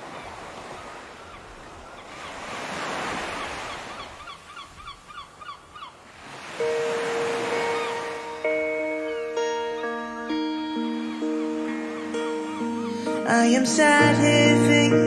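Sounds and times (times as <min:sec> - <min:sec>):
ocean waves washing in: 0:00.0 - 0:04.9, 0:06.0 - 0:14.7.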